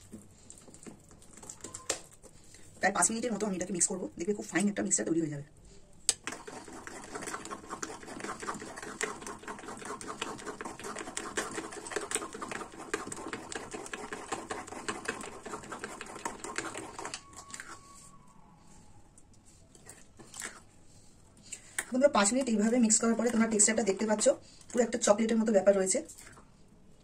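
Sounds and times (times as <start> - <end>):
batter squelching: 6.0 - 18.2.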